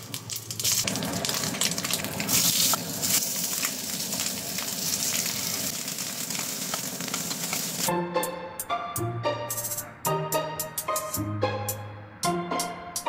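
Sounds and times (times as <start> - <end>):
meat sizzling in a wok: 0.0 - 7.9.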